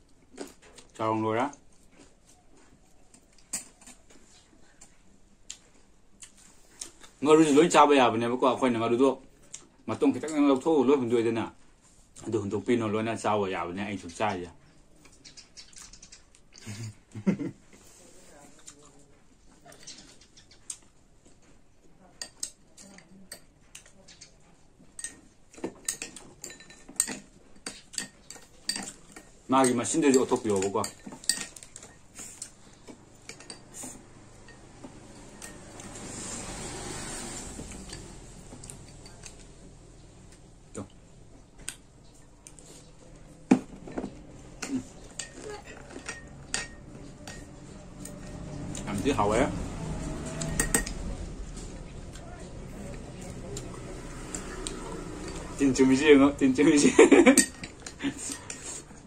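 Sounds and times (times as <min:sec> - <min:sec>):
metal spoon clinking on glass bowls: 0:24.9 - 0:32.5, 0:33.1 - 0:36.4, 0:37.6 - 0:39.6, 0:43.9 - 0:51.3, 0:53.0 - 0:58.8.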